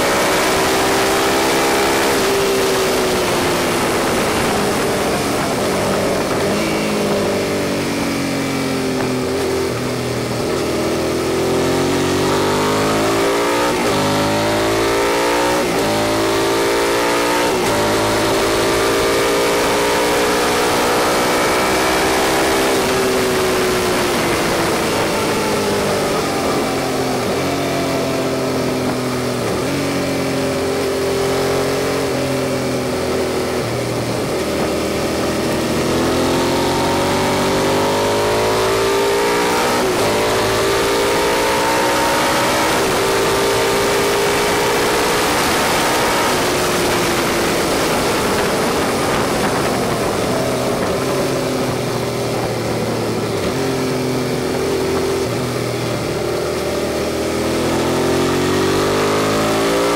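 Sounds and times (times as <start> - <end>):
motorcycle engine through gears: 0.0 - 59.9
wind rush: 1.2 - 10.6, 20.9 - 29.8, 41.8 - 56.2.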